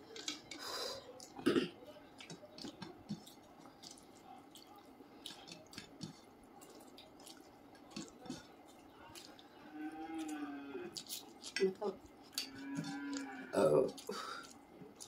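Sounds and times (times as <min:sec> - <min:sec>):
fingers squishing rice: 0:02.1 - 0:15.0
lip smacks and chewing: 0:02.2 - 0:09.6, 0:10.2 - 0:13.3, 0:13.9 - 0:15.0.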